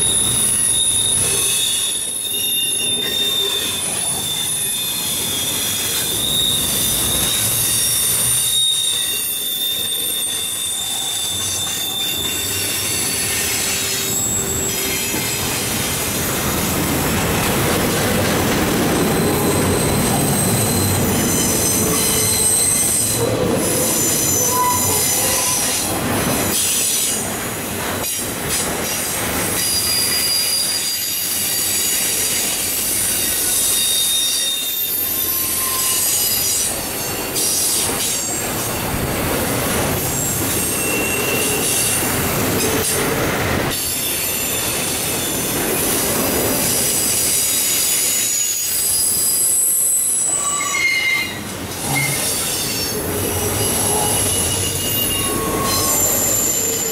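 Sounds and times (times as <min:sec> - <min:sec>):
high-pitched wheel squeals: 0:00.0 - 0:16.2, 0:19.2 - 0:26.8, 0:29.6 - 0:38.6, 0:40.1 - 0:42.2, 0:46.8 - 0:56.9
train wheels rumbling on rails: 0:00.0 - 0:56.9.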